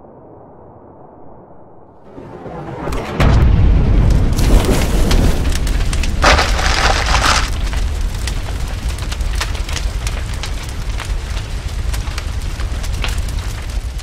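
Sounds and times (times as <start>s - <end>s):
sharp fire-like crackles: 3.8s - 14.0s.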